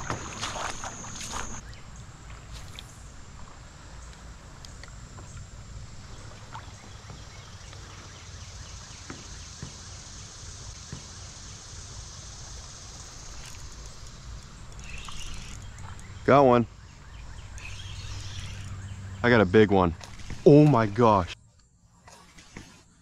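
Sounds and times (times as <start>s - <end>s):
low outdoor rumble: 10.0s - 21.4s.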